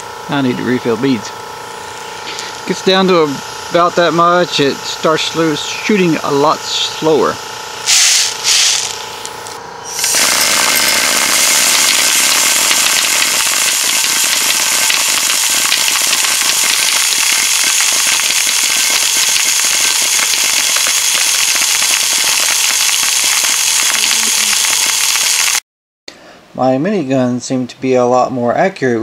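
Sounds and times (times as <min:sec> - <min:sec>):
compressed air rushing: 0:07.8 - 0:09.3, 0:09.9 - 0:17.6
rapid rattle of plastic pellets: 0:10.0 - 0:25.6.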